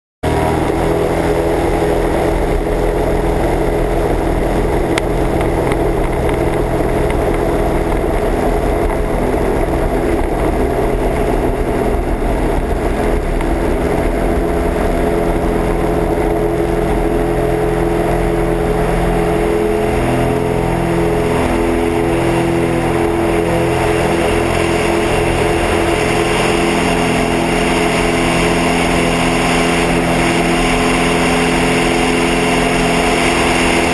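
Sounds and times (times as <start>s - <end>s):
plane engine and propeller: 0.2s - 33.9s.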